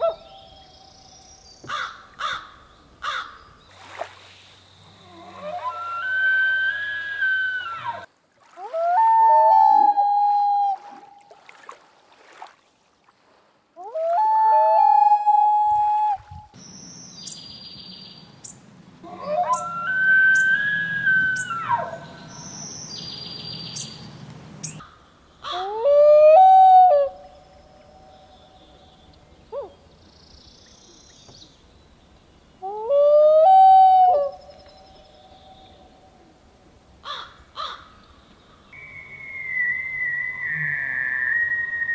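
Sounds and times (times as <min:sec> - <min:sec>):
loon calling: 0:05.0 - 0:11.0, 0:19.0 - 0:22.6, 0:38.7 - 0:41.9
high steady whistle with chirps: 0:19.5 - 0:21.6, 0:38.7 - 0:41.9.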